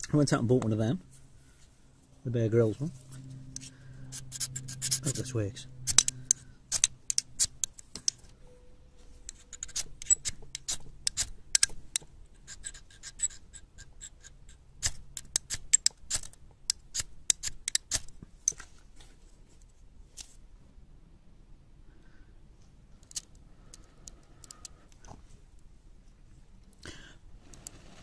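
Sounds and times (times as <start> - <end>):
fire starter rasping scrapes: 2.6 - 8.2, 9.2 - 11.4, 12.4 - 18.1, 27.4 - 28.0.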